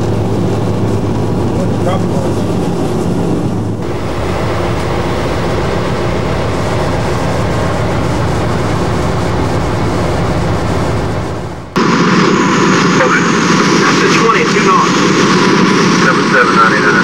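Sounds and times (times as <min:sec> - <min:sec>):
wheels rumbling on rail: 0:00.0 - 0:12.5
diesel engine drone: 0:00.0 - 0:17.0.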